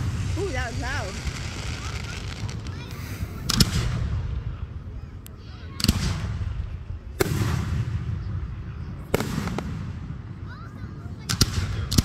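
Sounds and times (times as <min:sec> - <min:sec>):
firework shells booming: 0:00.0 - 0:04.4, 0:09.1 - 0:10.1.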